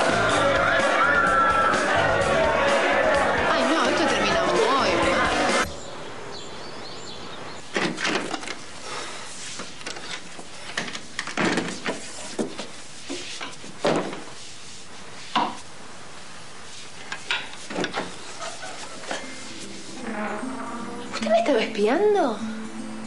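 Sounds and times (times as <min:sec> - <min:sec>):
steady low hiss: 0:05.5 - 0:23.0
clothes rustling: 0:07.7 - 0:20.4.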